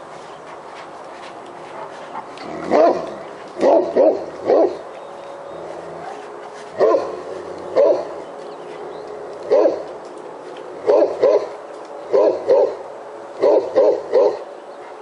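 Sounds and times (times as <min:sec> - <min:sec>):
dog barking deeply: 0:02.4 - 0:04.8, 0:06.8 - 0:08.2, 0:09.5 - 0:09.9, 0:10.8 - 0:12.8, 0:13.4 - 0:14.4.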